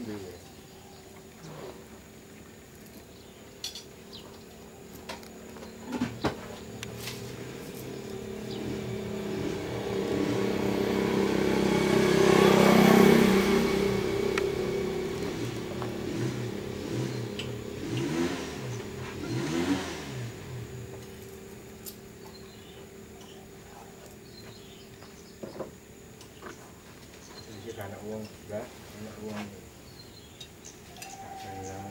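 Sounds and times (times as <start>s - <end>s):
vehicle engine passing by: 5.1s - 25.3s.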